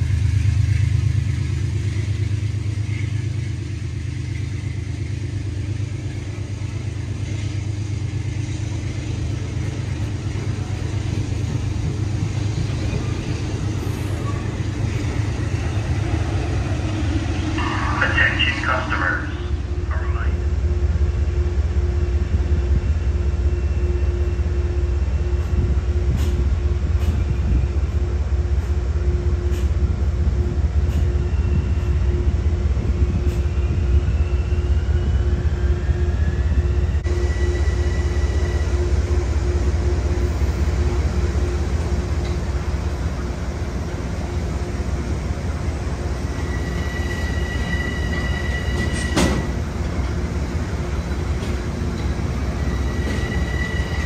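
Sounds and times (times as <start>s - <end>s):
train rumbling: 0.0s - 54.0s
rail clicks: 25.3s - 33.7s, 40.2s - 54.0s
wheel squeals: 46.4s - 49.5s, 52.0s - 54.0s.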